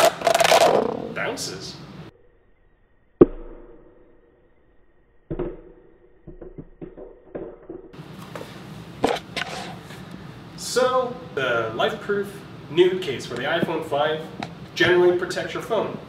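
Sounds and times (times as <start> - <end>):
phone hitting concrete floor: 5.3 - 8.0.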